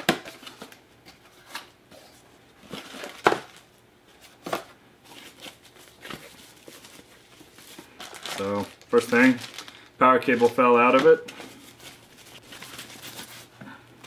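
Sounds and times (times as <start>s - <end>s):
plastic wrapping rustling: 5.0s - 13.6s.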